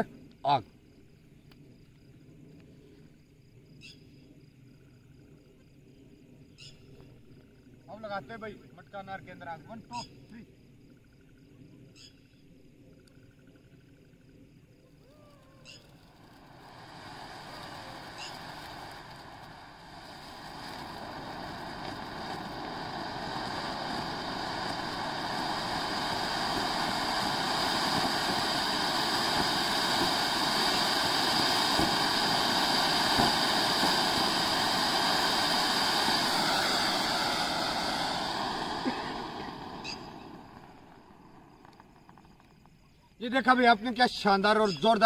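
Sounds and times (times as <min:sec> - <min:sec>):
fountain firework hissing: 0:14.8 - 0:45.0.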